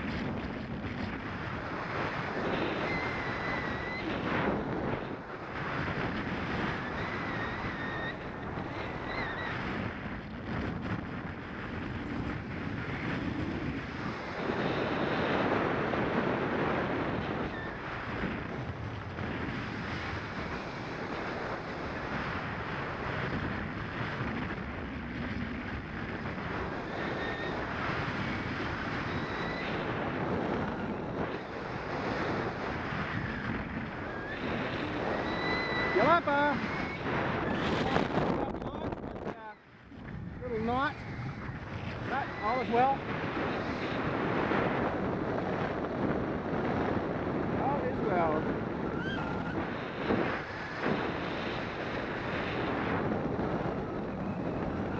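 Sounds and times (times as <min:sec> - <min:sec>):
airflow rushing over microphone: 0:00.0 - 0:54.9.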